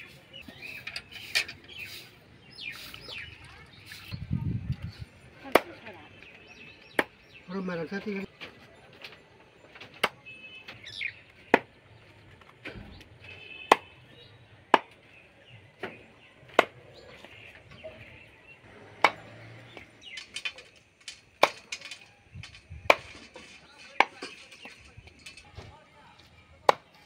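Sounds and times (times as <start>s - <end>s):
machete chopping meat on wood: 19.0s - 19.2s.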